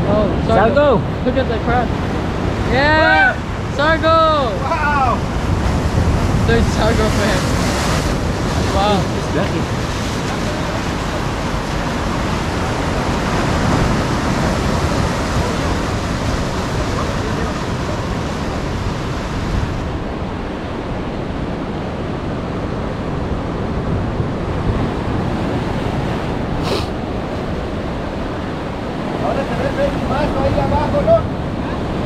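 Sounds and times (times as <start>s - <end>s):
wind on microphone: 0.0s - 32.0s
surf breaking against rocks: 1.6s - 21.6s.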